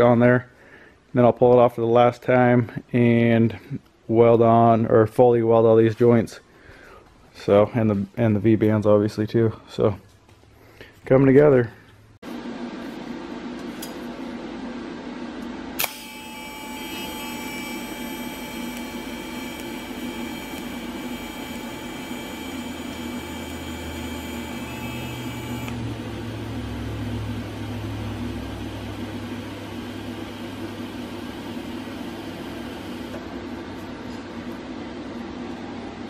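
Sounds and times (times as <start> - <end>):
welding arc humming: 15.4 - 33.2
thin high whine: 15.8 - 33.2.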